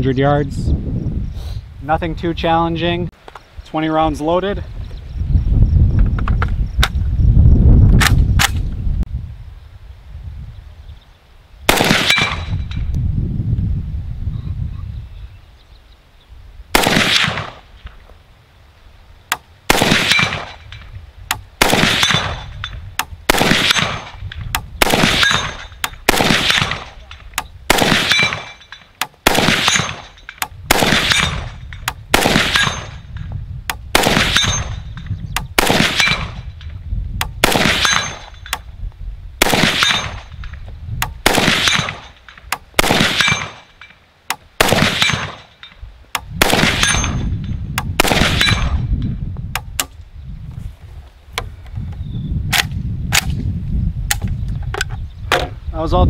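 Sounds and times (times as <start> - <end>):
pistol shots echoing: 11.7 - 12.5, 16.8 - 17.6, 19.7 - 20.6, 21.6 - 22.5, 23.3 - 24.2, 24.8 - 27.1, 27.7 - 33.0, 34.0 - 34.8, 35.6 - 36.4, 37.4 - 38.3, 39.4 - 40.3, 41.2 - 42.2, 42.8 - 43.8, 44.6 - 45.5, 48.0 - 48.7.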